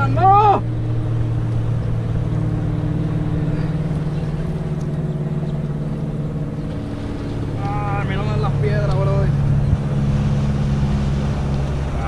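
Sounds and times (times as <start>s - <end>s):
motor engine humming: 0.0s - 12.0s.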